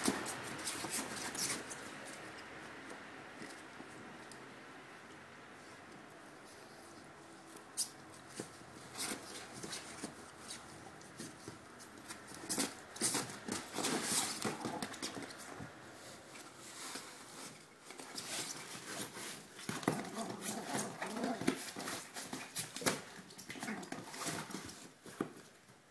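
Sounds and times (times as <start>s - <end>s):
clicks and knocks of paws: 7.8s - 15.7s, 17.8s - 25.6s.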